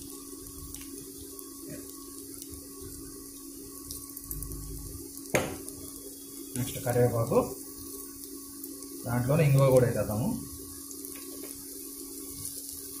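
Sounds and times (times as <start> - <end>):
cooktop low hum: 0.0 - 13.0
spices sizzling in hot oil: 0.0 - 13.0
sharp knock: 5.4 - 5.6.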